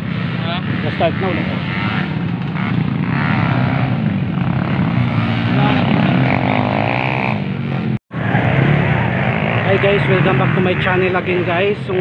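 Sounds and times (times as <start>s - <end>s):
motorcycle engines revving: 0.0s - 12.0s
crowd voices: 8.2s - 12.0s.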